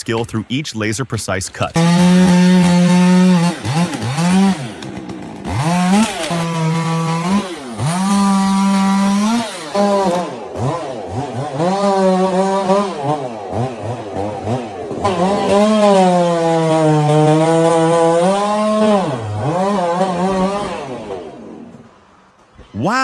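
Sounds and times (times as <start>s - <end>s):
chainsaw revving: 1.7s - 22.2s.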